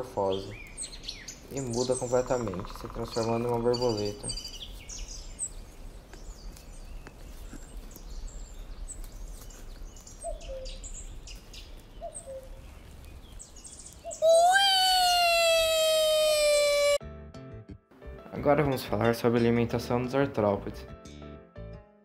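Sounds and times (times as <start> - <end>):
low bird calls: 0.0 - 17.0
bird chirps: 0.2 - 17.0.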